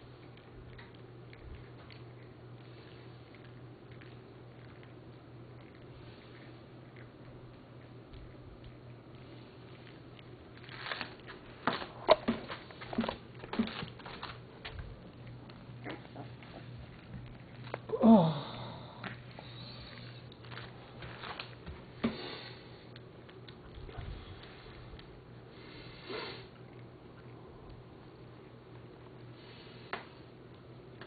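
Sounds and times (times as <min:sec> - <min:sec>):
puppies sniffing and snuffling: 0:00.0 - 0:17.9, 0:18.9 - 0:31.0.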